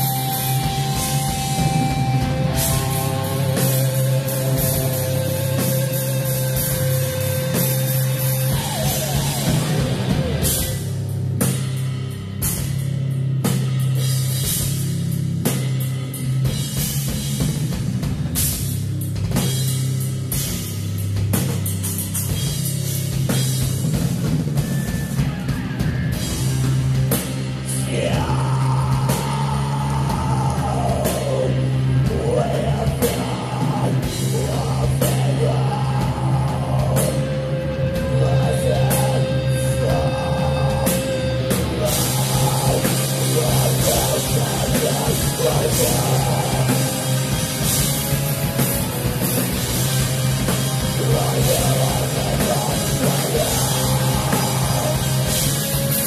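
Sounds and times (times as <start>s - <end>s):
busy drumming: 0.0s - 56.0s
distorted guitars: 0.0s - 56.0s.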